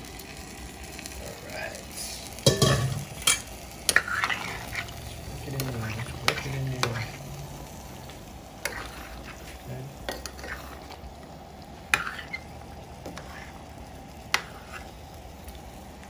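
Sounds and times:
stew sizzling in a pot: 0:00.0 - 0:16.0.

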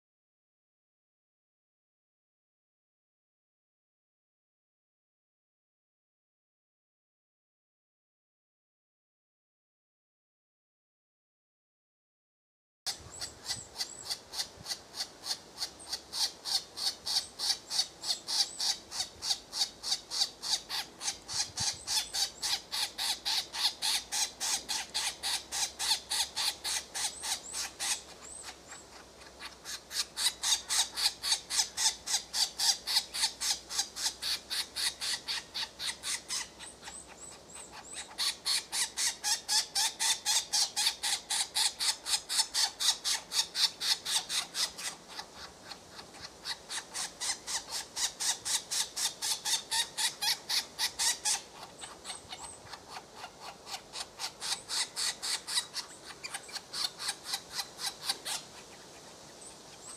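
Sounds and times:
woodpecker nestlings begging calls: 0:12.9 - 0:59.9.

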